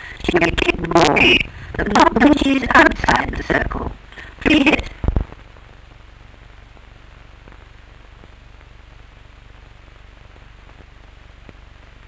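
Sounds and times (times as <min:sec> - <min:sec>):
film soundtrack hiss: 0:00.0 - 0:12.0
low hum: 0:00.0 - 0:12.0
faint crackle clicks: 0:05.0 - 0:12.0.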